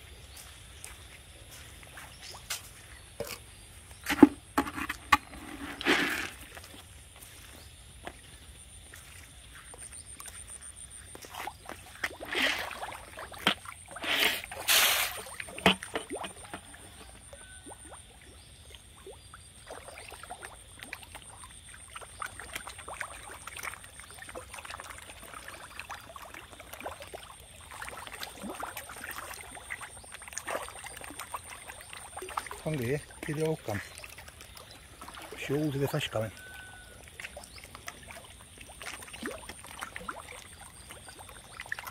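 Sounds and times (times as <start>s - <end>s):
pellets splashing onto pond: 3.9s - 7.1s, 10.1s - 41.9s
fish popping at water surface: 13.3s - 17.6s.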